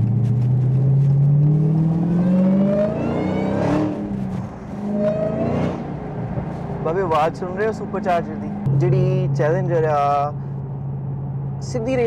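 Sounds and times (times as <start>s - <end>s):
car engine accelerating: 0.0s - 6.4s.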